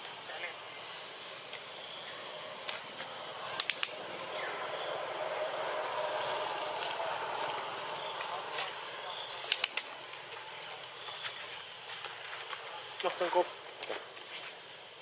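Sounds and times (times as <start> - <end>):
faint hum: 0.0 - 13.8
steady hiss: 0.0 - 15.0
sharp clicks: 3.4 - 4.0, 9.3 - 10.2.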